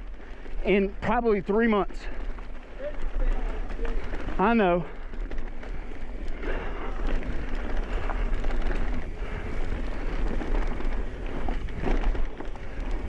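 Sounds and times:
bike rattling over bumps: 0.0 - 13.0
tyre noise on dirt: 0.0 - 13.0
wind buffeting microphone: 0.0 - 13.0.

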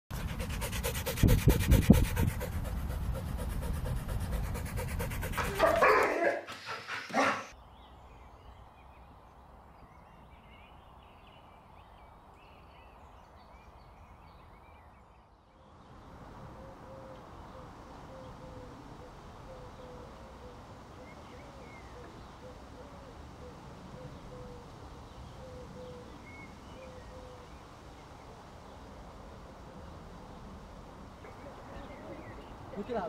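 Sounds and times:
dog panting: 0.1 - 7.5
faint birds chirping: 0.1 - 33.0
dog barking: 5.4 - 7.5.

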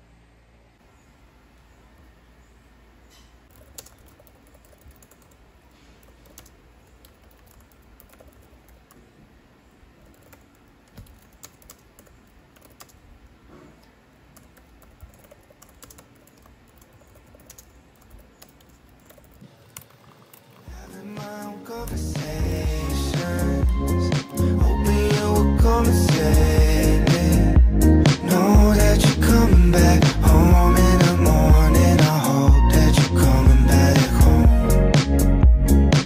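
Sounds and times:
laptop keyboard typing: 3.5 - 9.1, 10.0 - 13.1, 14.3 - 22.4
music: 20.7 - 36.0.

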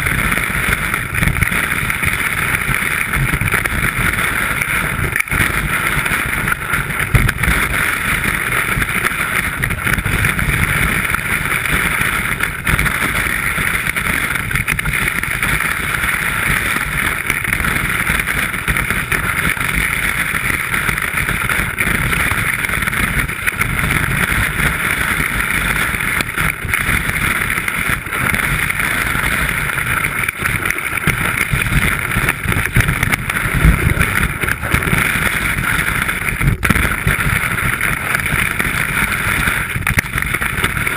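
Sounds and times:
wind rumble on microphone: 0.0 - 40.9
skis hissing through snow: 24.1 - 40.9.

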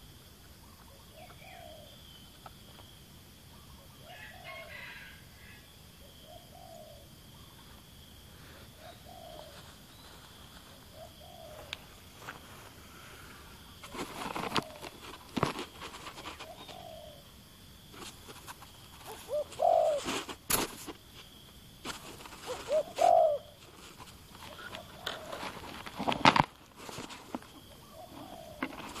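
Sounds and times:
dove cooing: 0.9 - 2.0, 6.0 - 7.6, 8.8 - 9.7, 10.9 - 11.8, 13.9 - 15.5, 16.1 - 17.3, 19.0 - 20.3, 22.0 - 26.2, 27.6 - 29.0
sharp knocks and rustles: 13.8 - 16.9, 17.9 - 29.0.

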